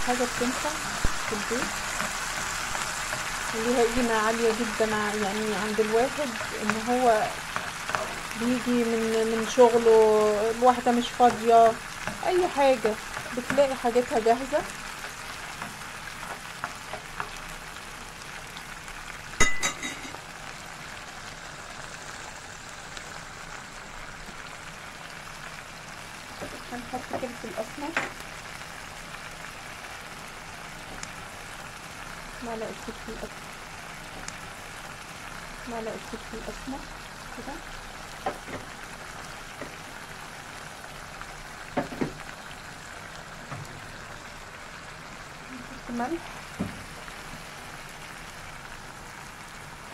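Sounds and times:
sauce sizzling in a frying pan: 0:00.0 - 0:49.9
ringing metal clink: 0:19.4 - 0:20.1.

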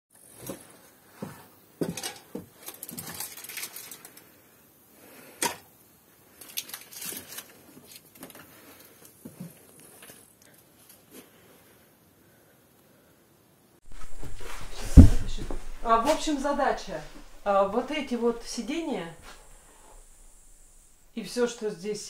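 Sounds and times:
household clicks and knocks: 0:13.9 - 0:18.5.

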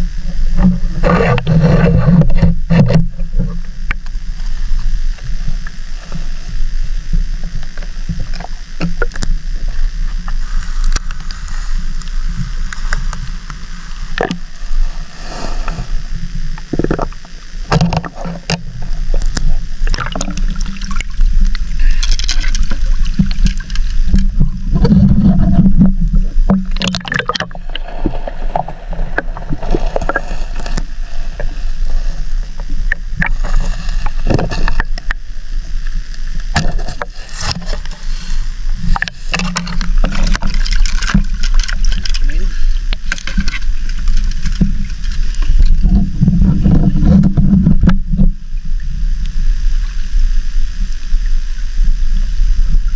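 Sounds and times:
seawater sloshing and gurgling: 0:00.0 - 0:35.8, 0:36.4 - 0:49.0.

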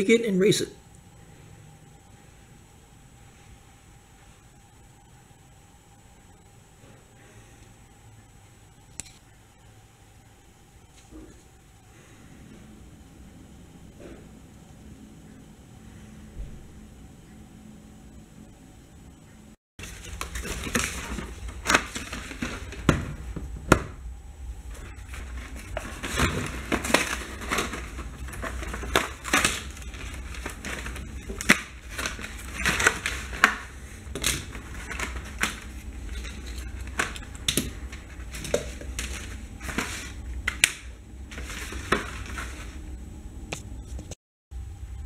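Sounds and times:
low steady hum: 0:00.0 - 0:45.0
cardboard packaging crinkling and tearing: 0:19.8 - 0:23.2, 0:24.7 - 0:42.8.

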